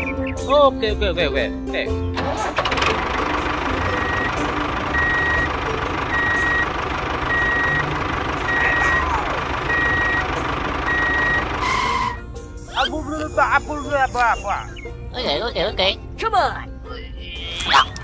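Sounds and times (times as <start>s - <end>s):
truck engine running: 1.9s - 15.1s
reversing alarm beeping: 3.9s - 5.5s, 6.1s - 12.2s.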